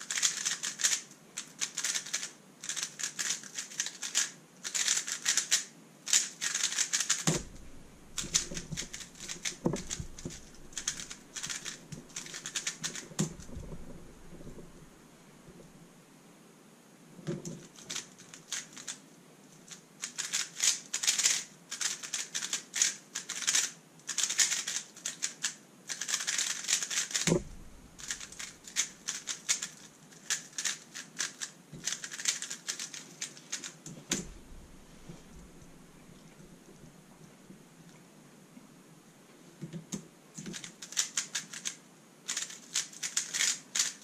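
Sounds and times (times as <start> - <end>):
puzzle cube plastic clicking: 0.1 - 14.8, 17.5 - 19.0, 20.0 - 34.4, 39.9 - 44.0
dull thumps: 7.3 - 15.8, 27.3 - 28.6, 33.9 - 36.9.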